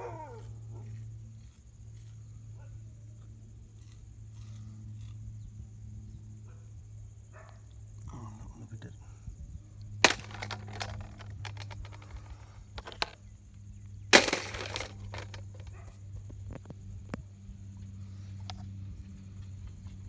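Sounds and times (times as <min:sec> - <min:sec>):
shells clacking against metal basin: 0:10.0 - 0:13.2, 0:14.2 - 0:15.7.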